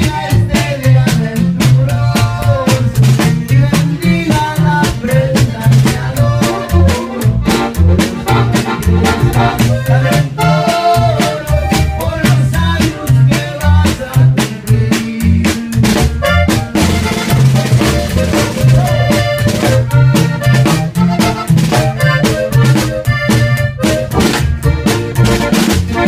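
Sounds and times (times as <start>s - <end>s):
button accordion: 0.0s - 26.0s
steady drum beat: 0.0s - 26.0s
upright bass: 0.0s - 26.0s.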